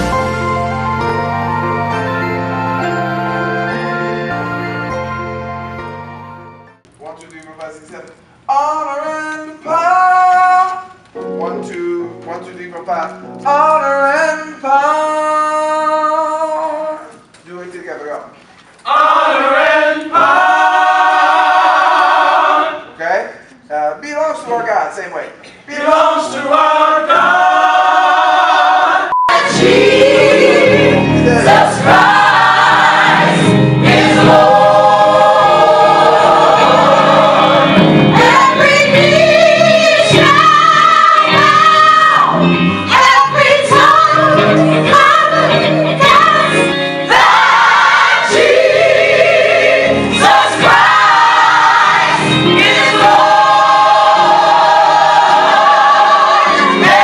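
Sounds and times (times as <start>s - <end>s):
gospel choir singing: 0.0s - 6.6s, 18.9s - 23.0s, 25.6s - 57.0s
keyboard accompaniment: 0.0s - 7.0s, 27.1s - 57.0s.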